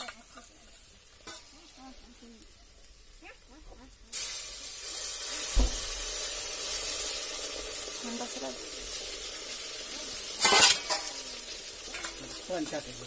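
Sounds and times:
meat sizzling in hot oil: 0.0s - 13.0s
knock: 5.5s - 5.8s.

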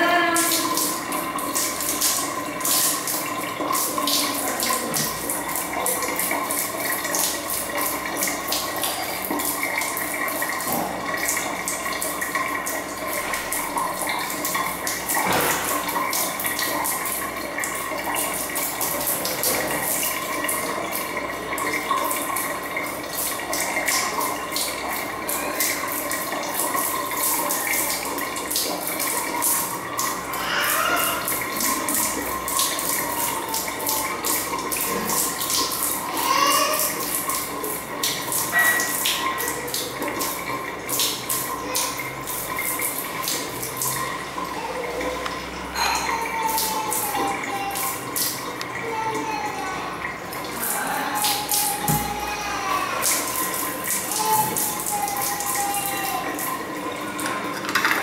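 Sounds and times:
water spraying onto tiles: 0.1s - 12.0s.

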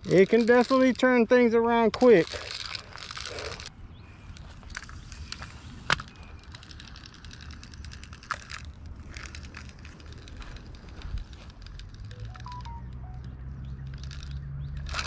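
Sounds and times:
fishing tackle clicking: 4.8s - 15.0s.

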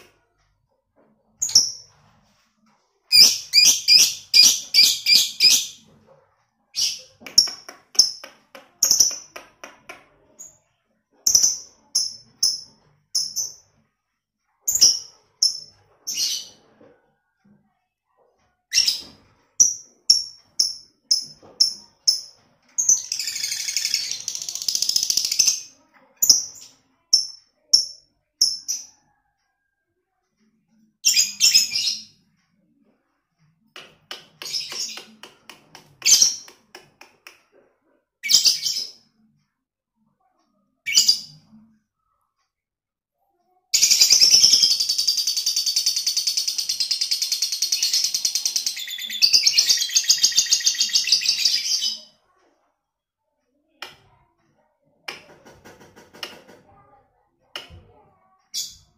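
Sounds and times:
lovebird chirping and chattering: 3.1s - 5.8s, 19.6s - 28.9s, 31.1s - 32.1s, 43.8s - 52.1s
lovebird chattering song: 43.8s - 51.9s.

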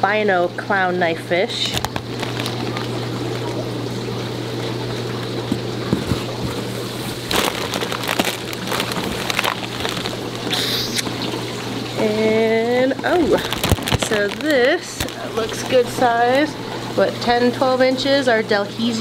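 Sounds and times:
constant low hum: 0.0s - 19.0s
aquarium filter rushing: 0.7s - 19.0s
plastic bags rustling and knocks: 1.7s - 2.9s, 5.5s - 10.7s, 13.1s - 16.5s.

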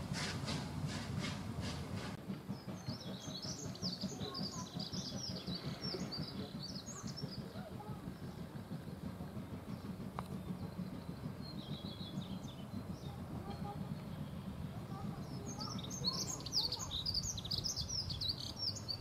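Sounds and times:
steam locomotive chuffing: 0.0s - 19.0s
birds chirping: 2.5s - 19.0s.

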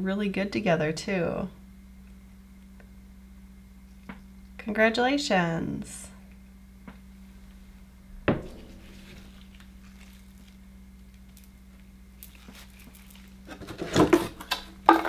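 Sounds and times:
low hum: 5.6s - 13.6s
glass bowl knocking on board: 8.3s - 9.2s.

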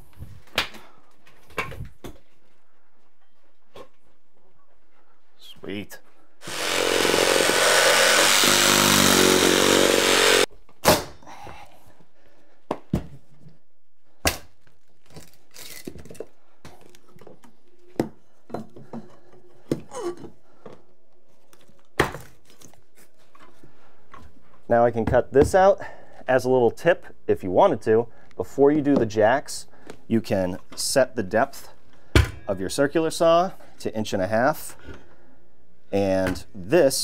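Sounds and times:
reciprocating saw running: 6.4s - 10.5s
knocks and thunks of wood: 22.0s - 22.4s, 32.1s - 32.4s.

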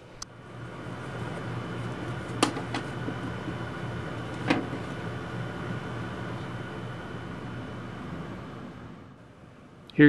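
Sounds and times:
low hum: 0.0s - 10.0s
wood knocking on workbench: 2.4s - 3.6s.

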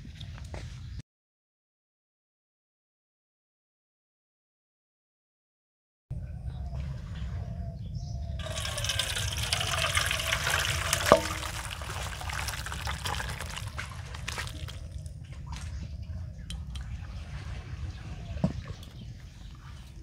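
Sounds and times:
food chunks knocking in bowl: 8.4s - 15.1s
liquid splashing into bowl: 8.4s - 15.8s.

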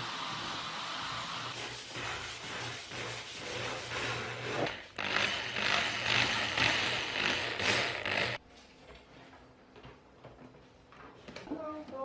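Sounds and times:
cordless drill driving screws: 5.0s - 8.4s.

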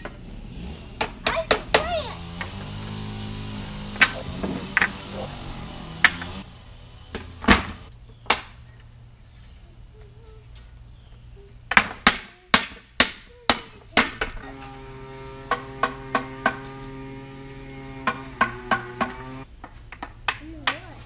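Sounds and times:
hammer striking wooden boards: 3.6s - 6.4s, 7.1s - 8.6s, 11.7s - 19.4s.

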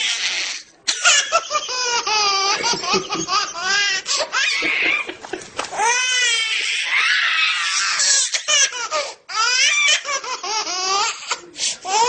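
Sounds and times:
baby laughing: 0.9s - 6.8s.

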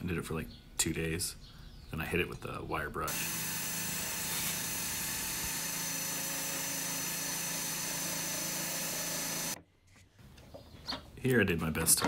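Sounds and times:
drill with wire brush whirring: 3.1s - 9.6s.

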